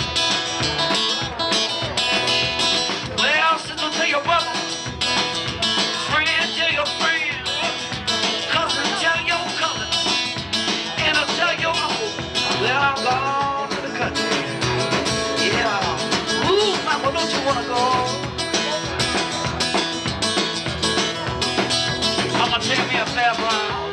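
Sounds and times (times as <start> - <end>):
acoustic guitar strumming: 0.0 - 23.9
drum kit beat: 0.0 - 23.9
man singing: 3.0 - 19.7, 22.0 - 23.9.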